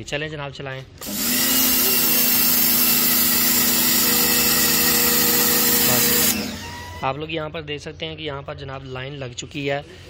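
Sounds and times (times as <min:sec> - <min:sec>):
pressure washer motor hum: 0:01.0 - 0:07.0.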